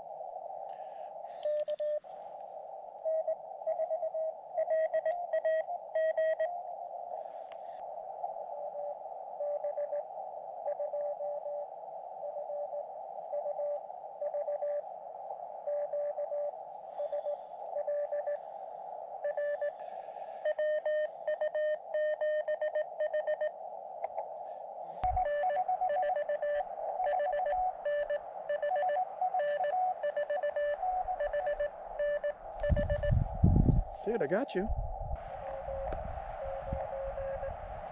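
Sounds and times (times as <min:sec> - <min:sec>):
radio receiver hiss: 0:06.6 - 0:37.9
morse code tone: 0:25.0 - 0:33.2.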